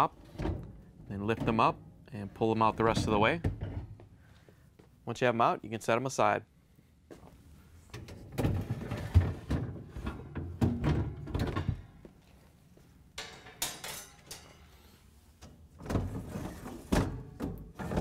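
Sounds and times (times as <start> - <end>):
freezer baskets knocking and rattling: 0.3 - 1.8, 8.2 - 11.9, 15.8 - 18.0.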